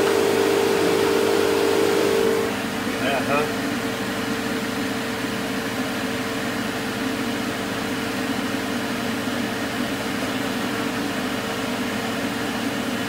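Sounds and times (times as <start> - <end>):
recovery machine humming: 0.0 - 5.9.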